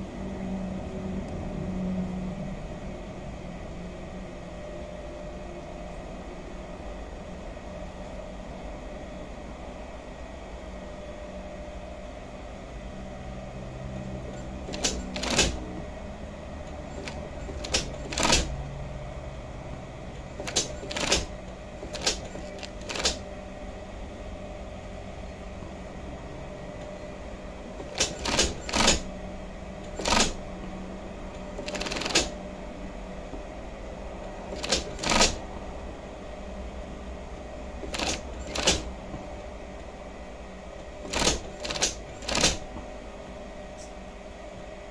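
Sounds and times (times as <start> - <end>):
sewing machine stitching bursts: 14.4 - 15.6, 16.9 - 18.6, 20.4 - 23.2, 27.8 - 29.1, 29.9 - 30.4, 31.5 - 32.4, 34.5 - 35.4, 37.8 - 38.9, 41.1 - 42.6.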